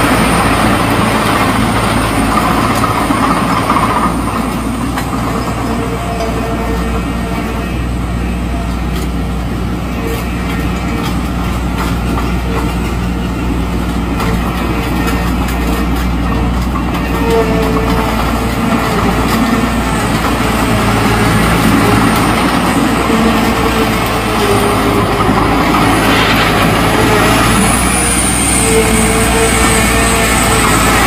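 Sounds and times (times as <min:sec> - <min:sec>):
steel tracks clanking: 0:00.0 - 0:31.0
tractor engine running: 0:00.0 - 0:31.0.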